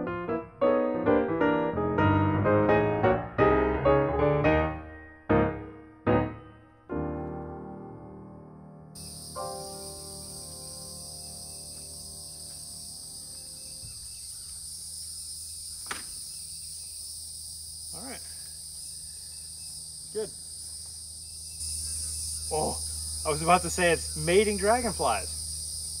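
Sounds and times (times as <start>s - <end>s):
soft piano music: 0.0s - 13.9s
high insect drone: 9.0s - 26.0s
brief knocks: 15.8s - 16.2s.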